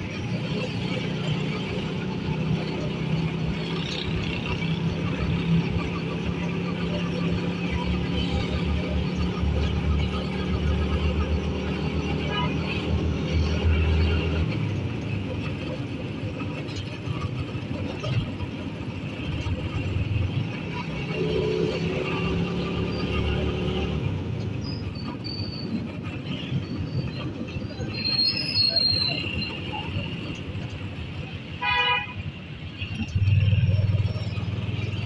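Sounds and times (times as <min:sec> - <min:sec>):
vehicle engine and road noise: 0:00.0 - 0:35.0.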